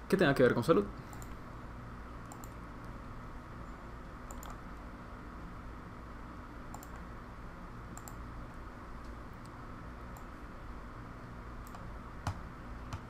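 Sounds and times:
low room hum: 0.0 - 13.0
computer mouse clicking: 1.1 - 1.4, 2.2 - 3.0, 4.2 - 4.6, 6.7 - 7.1, 7.9 - 8.2, 9.0 - 10.3, 11.6 - 13.0.

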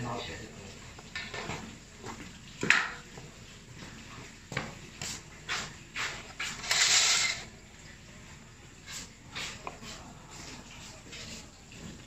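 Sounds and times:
knife cutting tofu: 8.9 - 11.4.

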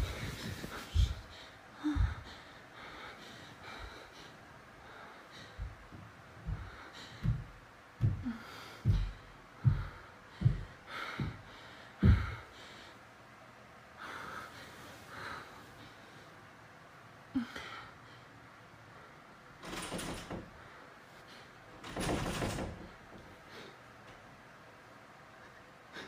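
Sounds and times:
soft breathy hisses: 0.0 - 1.5
dull low thuds: 1.9 - 2.3, 5.5 - 12.5.

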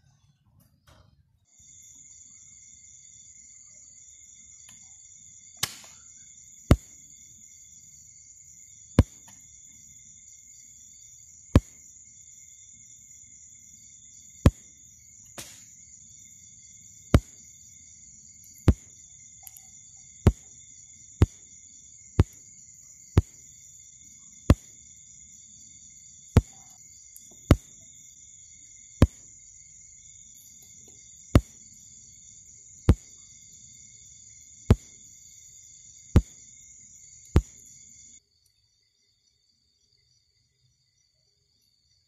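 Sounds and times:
flash tube firing snap: 5.6 - 6.0, 15.4 - 15.7.

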